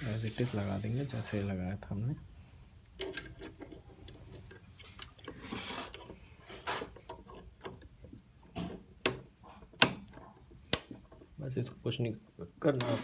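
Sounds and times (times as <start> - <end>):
plastic scrape: 4.8 - 7.4, 12.7 - 13.0.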